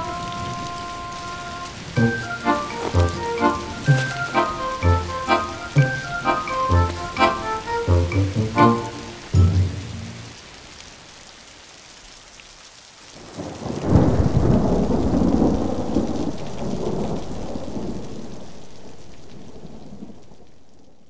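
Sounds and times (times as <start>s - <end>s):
steady rain: 0.0s - 21.0s
thunder rumbling: 13.4s - 18.2s.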